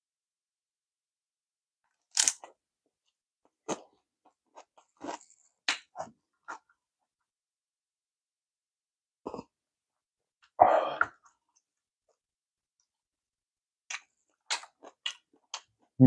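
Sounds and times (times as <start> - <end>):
person swallowing: 10.6 - 11.2
rough throat sound: 10.6 - 11.2.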